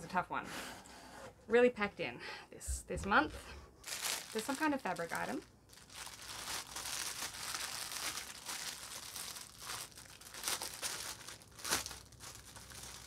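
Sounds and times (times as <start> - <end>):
plastic packaging crinkling: 3.8 - 13.0.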